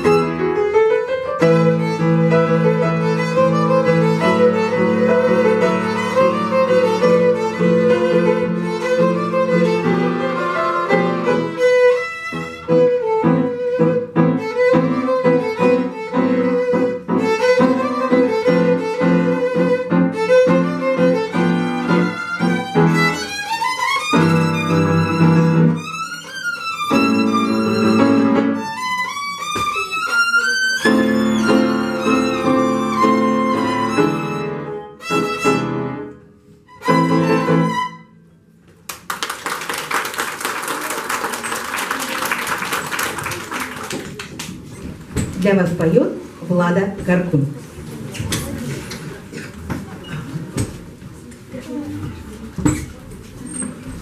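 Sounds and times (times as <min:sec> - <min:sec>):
violin with piano: 0:00.0 - 0:38.3
audience applause: 0:38.9 - 0:44.6.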